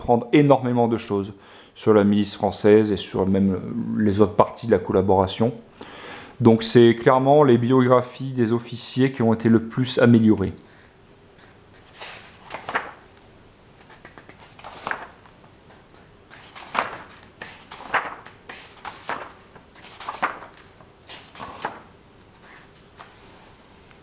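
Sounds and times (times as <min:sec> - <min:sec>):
book pages turning: 0:11.4 - 0:24.0.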